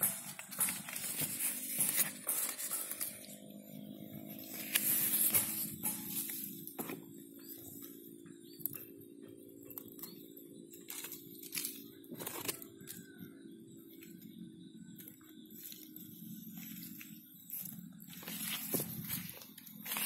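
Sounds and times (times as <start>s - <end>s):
low hum: 0.0s - 20.0s
rustling and crackling from handling: 4.1s - 8.0s, 15.5s - 20.0s.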